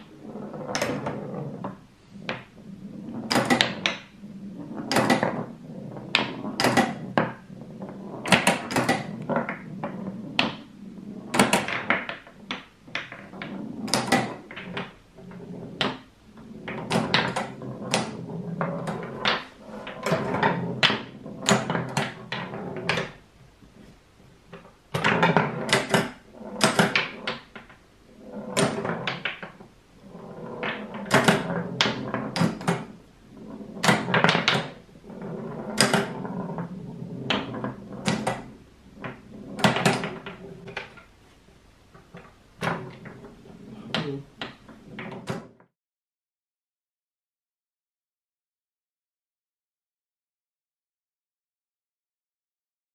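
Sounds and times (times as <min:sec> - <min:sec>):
pinball clacking on wood: 0:00.0 - 0:02.5, 0:03.1 - 0:23.2, 0:24.5 - 0:29.6, 0:30.2 - 0:41.1, 0:42.0 - 0:45.5
ball rolling rumble: 0:00.0 - 0:45.7.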